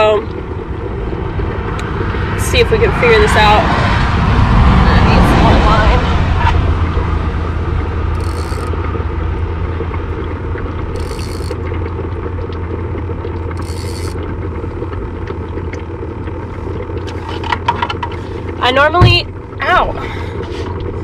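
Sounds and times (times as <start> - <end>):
road traffic noise: 0.0 - 11.8
bubbler humming: 0.0 - 21.0.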